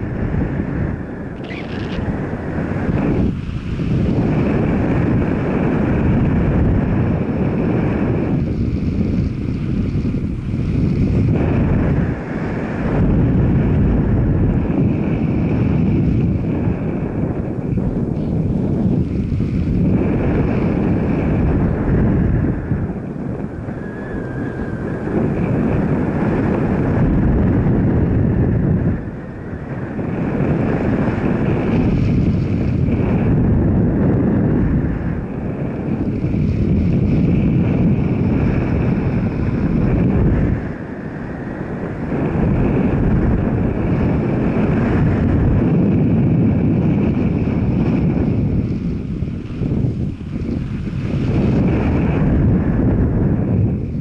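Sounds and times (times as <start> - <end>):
moving vehicle noise: 0.0 - 54.0
wind rushing over microphone: 0.0 - 54.0.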